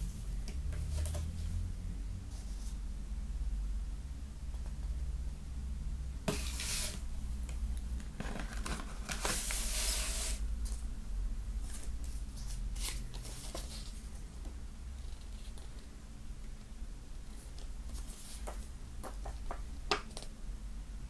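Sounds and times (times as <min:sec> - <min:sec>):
paper and cardboard rustling: 0:08.1 - 0:10.4, 0:11.6 - 0:14.1.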